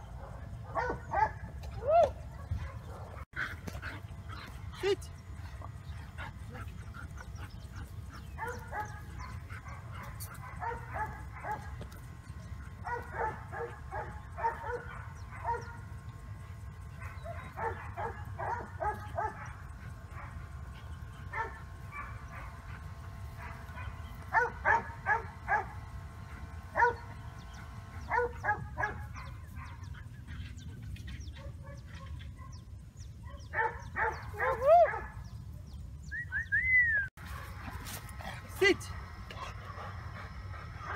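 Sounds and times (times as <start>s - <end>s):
dog barking and yipping: 0.2s - 5.0s, 6.1s - 11.8s, 12.8s - 15.8s, 17.0s - 20.4s, 21.3s - 25.8s, 26.6s - 27.1s, 28.0s - 30.6s, 33.3s - 35.2s.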